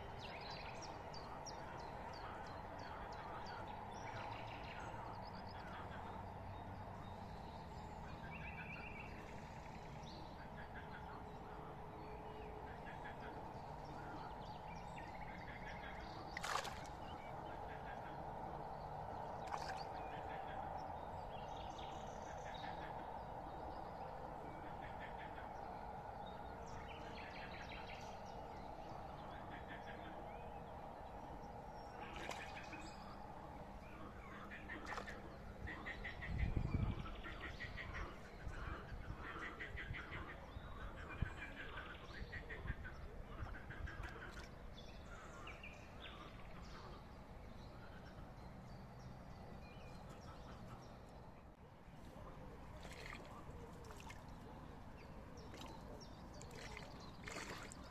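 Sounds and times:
steady low hum: 0.0 - 57.9.

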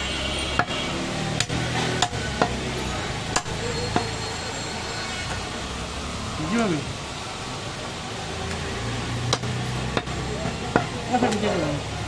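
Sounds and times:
steady background noise: 0.0 - 12.0
cleaver chopping meat on wood: 0.6 - 2.6, 3.3 - 4.1, 9.3 - 11.4.

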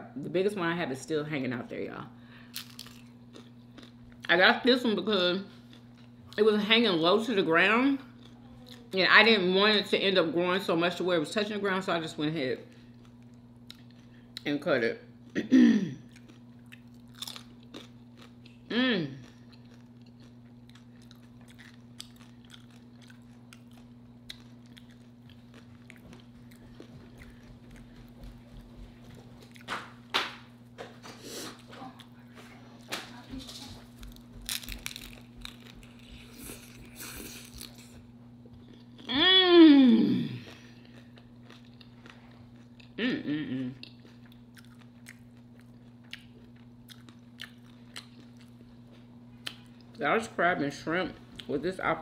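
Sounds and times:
chewing crunchy food: 2.4 - 4.4, 8.0 - 9.0, 12.7 - 14.5, 16.0 - 30.1, 31.0 - 39.1, 40.2 - 43.0, 43.6 - 50.0.

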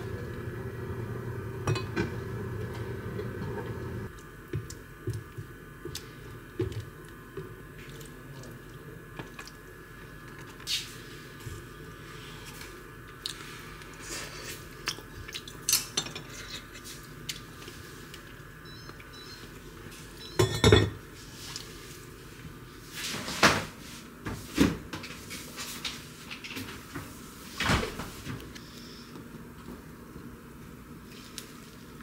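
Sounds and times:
utensils clinking: 20.3 - 21.0.

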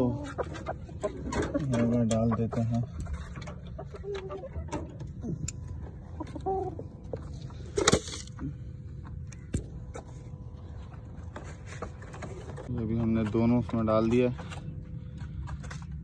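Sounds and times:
hens clucking: 0.0 - 7.3.

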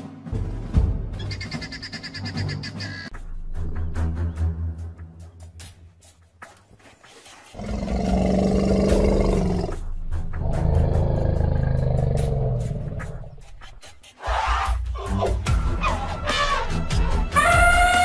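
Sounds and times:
deep animal roars: 7.6 - 9.8, 10.4 - 13.4.

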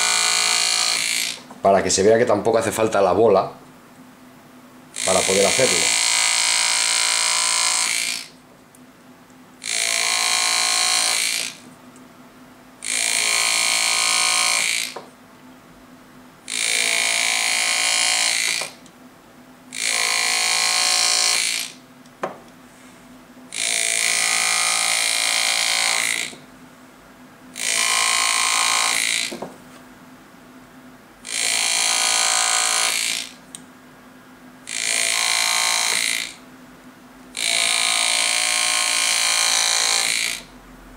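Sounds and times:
pneumatic engraving tool buzzing: 0.0 - 1.5, 5.0 - 8.4, 9.6 - 11.6, 12.8 - 15.1, 16.5 - 18.9, 19.7 - 21.8, 23.5 - 26.5, 27.6 - 29.4, 31.2 - 33.6, 34.7 - 36.4, 37.4 - 40.5.

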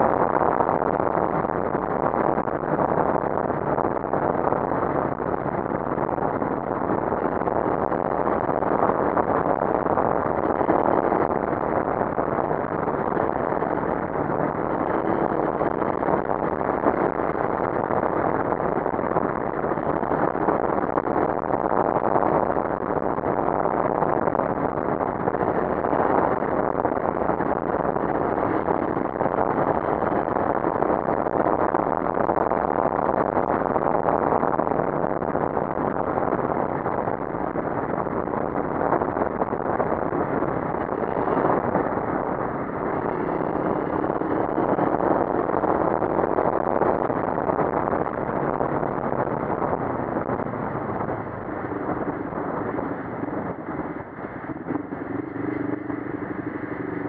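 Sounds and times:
wind and road noise: 0.0 - 57.0
motorcycle engine: 40.0 - 57.0.

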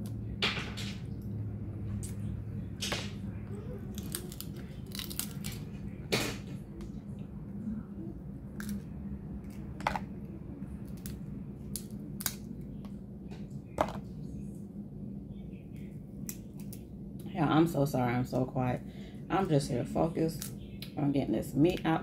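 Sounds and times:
crab shells snapping: 4.0 - 5.7, 10.8 - 12.6.

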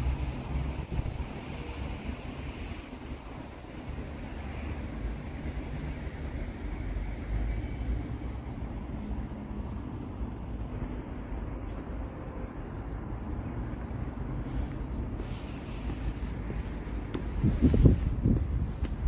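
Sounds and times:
wind buffeting microphone: 0.3 - 4.2, 12.9 - 19.0.

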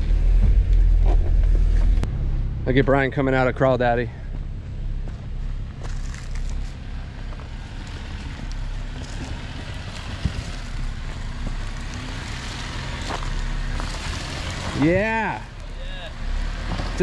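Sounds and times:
engine running low: 0.0 - 17.0
tyres crunching on stones: 4.3 - 15.8.

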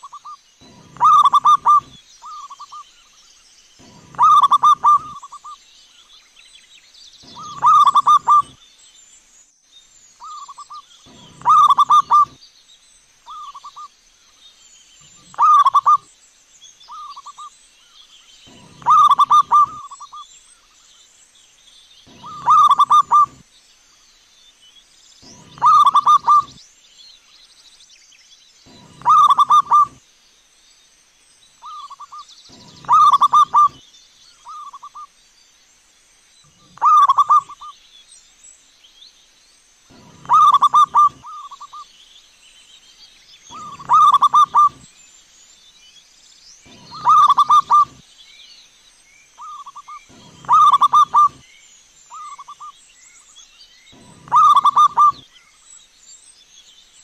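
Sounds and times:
dove cooing: 0.0 - 2.7, 3.8 - 5.6, 7.2 - 8.6, 10.2 - 12.4, 15.2 - 16.0, 18.5 - 20.2, 22.1 - 23.4, 25.2 - 26.6, 28.7 - 30.0, 31.6 - 33.8, 36.6 - 37.7, 39.9 - 41.8, 43.5 - 44.8, 46.7 - 48.0, 49.4 - 51.4, 54.0 - 55.2
faint high chirps: 3.8 - 5.6, 7.2 - 8.6, 18.5 - 20.2, 22.0 - 23.4, 43.5 - 44.9.

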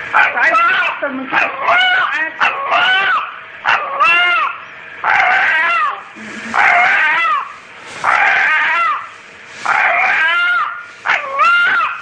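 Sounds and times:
rooster crowing: 4.0 - 12.0.

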